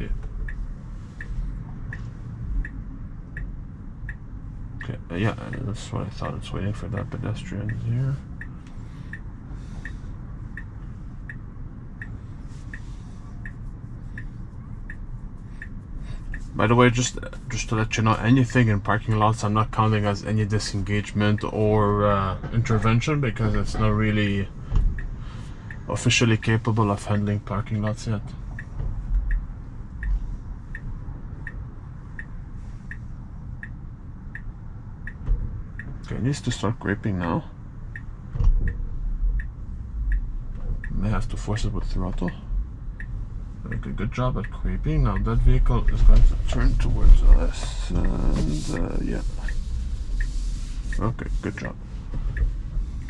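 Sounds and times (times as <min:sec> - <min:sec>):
low cabin hum: 0:00.0 - 0:53.0
turn signal ticking: 0:00.0 - 0:53.0.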